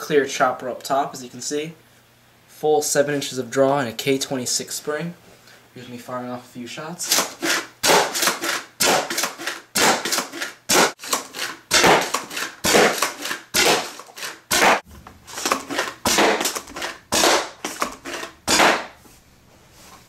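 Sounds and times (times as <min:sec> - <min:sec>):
toy blaster pump clacking and firing: 0:07.1 - 0:14.8.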